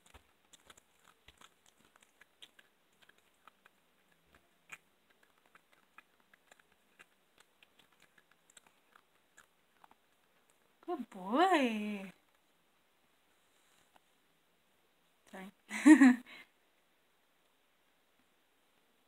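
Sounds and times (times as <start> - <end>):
cat chewing meat and bone: 0.0 - 10.9.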